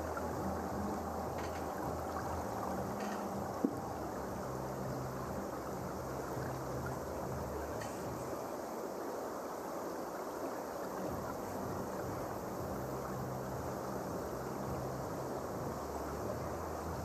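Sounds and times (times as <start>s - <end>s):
even rushing ambience: 0.0s - 9.0s.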